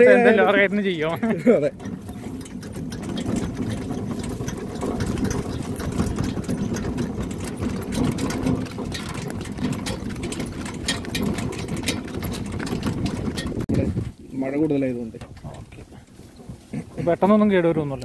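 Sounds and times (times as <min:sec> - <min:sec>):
cart rattling: 0:00.0 - 0:18.0
cart wheels rumbling: 0:00.0 - 0:18.0.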